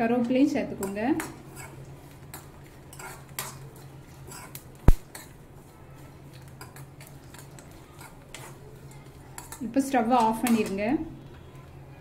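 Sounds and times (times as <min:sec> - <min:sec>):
metal spatula scraping a pan: 0:00.7 - 0:05.8, 0:06.5 - 0:10.9.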